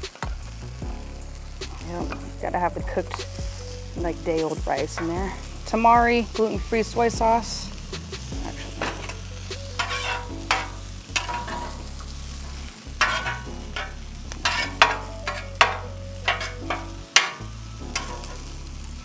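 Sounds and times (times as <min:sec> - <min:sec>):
rice sizzling in oil: 0:00.0 - 0:19.0
metal spatula scraping griddle: 0:08.0 - 0:19.0.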